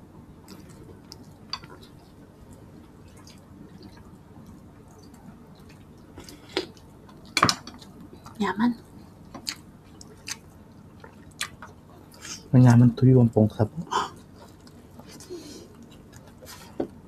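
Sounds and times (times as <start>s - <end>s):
chewing: 0.4s - 12.5s, 14.1s - 17.0s.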